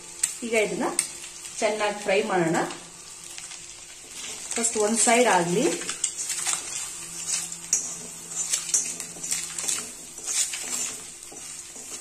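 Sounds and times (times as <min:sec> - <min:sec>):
eggs sizzling in a pan: 0:00.0 - 0:12.0
steel spoon scraping a pan: 0:03.3 - 0:12.0.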